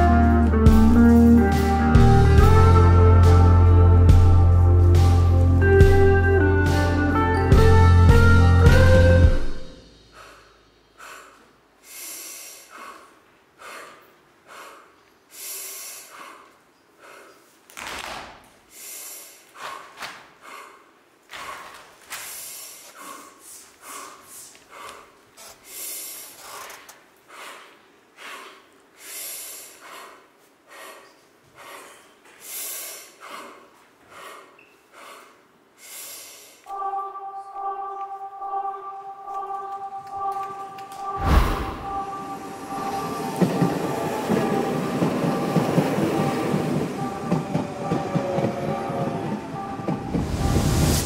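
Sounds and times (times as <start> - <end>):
held musical chord: 0.0 - 9.9, 36.7 - 44.6
sharp human breaths: 9.6 - 17.8, 18.6 - 36.7.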